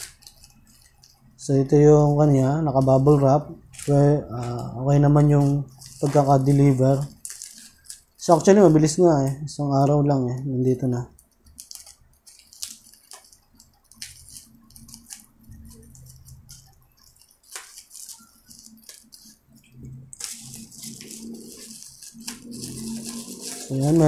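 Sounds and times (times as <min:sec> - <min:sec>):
plastic crinkling: 0:00.0 - 0:24.0
scissors snipping plastic: 0:11.1 - 0:24.0.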